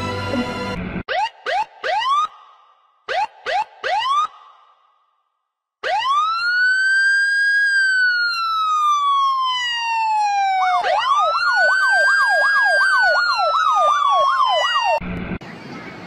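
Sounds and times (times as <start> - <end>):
woman imitating a siren wail: 6.0 - 15.0.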